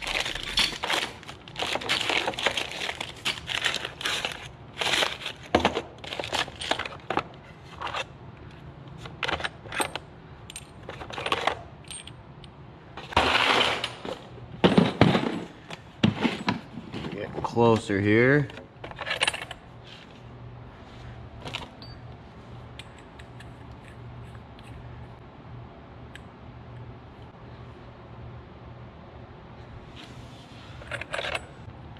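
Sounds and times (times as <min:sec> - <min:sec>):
plastic bags rustling: 0:00.0 - 0:07.1.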